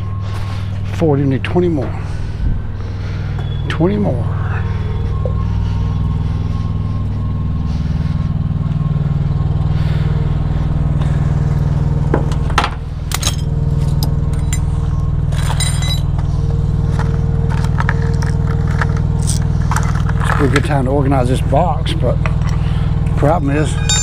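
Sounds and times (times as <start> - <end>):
engine idling hum: 0.0 - 24.0
metal tools clanking: 12.4 - 16.2, 22.3 - 24.0.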